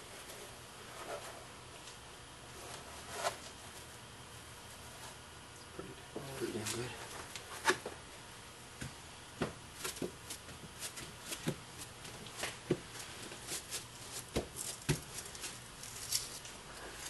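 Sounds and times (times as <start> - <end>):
gloved hands handling foam: 9.8 - 17.0.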